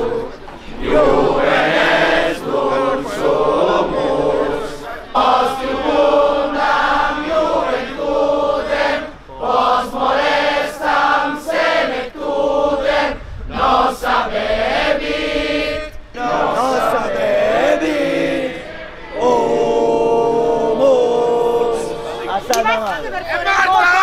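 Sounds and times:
group singing in unison: 0.0s - 22.8s.

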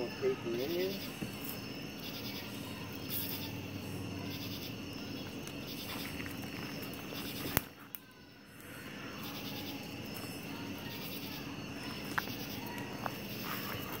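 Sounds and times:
night insects chirping: 0.0s - 14.0s.

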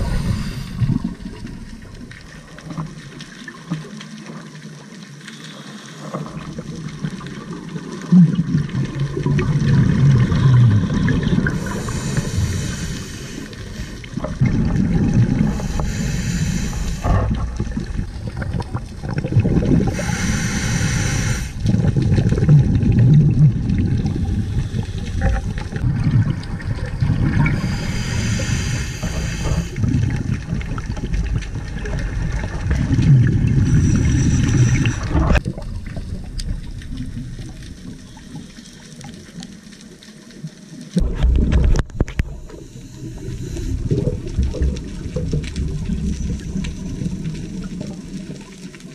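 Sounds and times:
hissing regulator inhale: 0.0s - 1.5s, 11.4s - 14.4s, 15.3s - 17.5s, 19.8s - 21.7s, 24.4s - 25.8s, 27.3s - 29.9s, 33.4s - 35.4s, 42.0s - 44.4s
gurgling exhaled bubbles: 0.0s - 4.2s, 6.0s - 39.6s, 40.9s - 48.9s.

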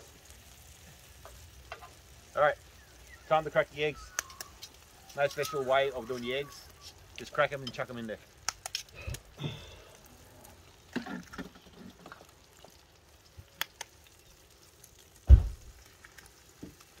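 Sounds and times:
food frying in a pan: 0.0s - 17.0s
eggs cracking clicks: 4.0s - 5.6s, 7.6s - 9.3s, 13.5s - 14.3s
loud low thump: 15.3s - 15.7s.

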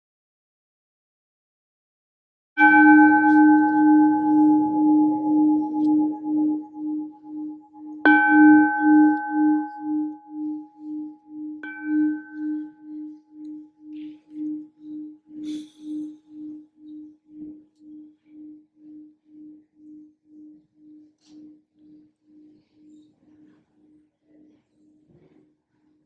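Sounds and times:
singing bowl struck with mallet: 2.6s - 22.5s
singing bowl low hum: 2.6s - 24.4s.

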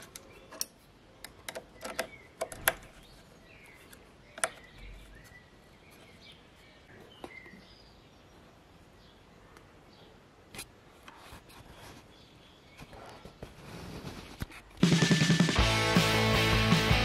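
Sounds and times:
faint bird chirps: 0.0s - 10.3s.

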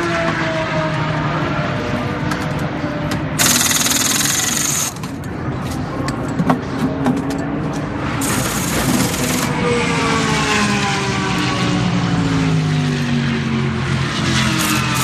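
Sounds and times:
race car engines running: 0.0s - 15.0s
pneumatic wheel guns rattling: 3.4s - 5.3s, 8.2s - 9.6s, 14.6s - 15.0s.

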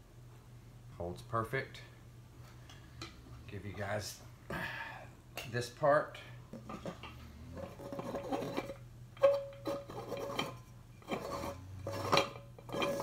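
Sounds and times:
glass scraping on metal: 6.7s - 13.0s.

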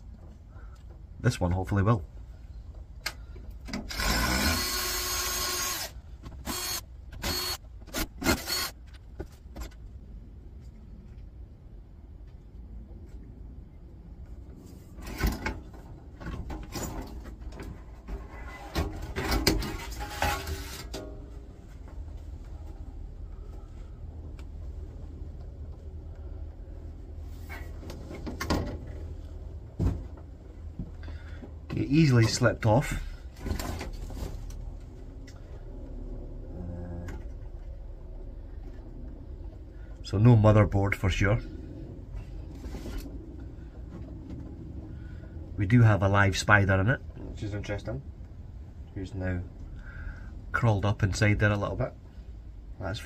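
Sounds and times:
low hum: 0.0s - 53.0s
cordless drill motor: 3.9s - 8.8s
scraping and rattling: 14.9s - 21.9s.

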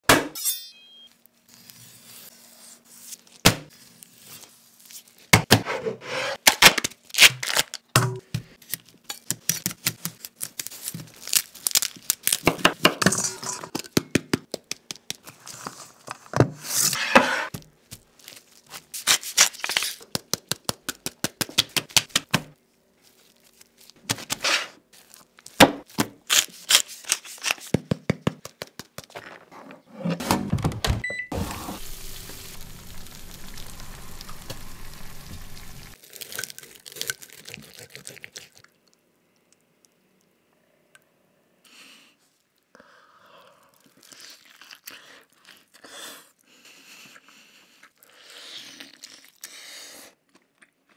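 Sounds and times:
steady oven hiss: 31.4s - 36.0s.

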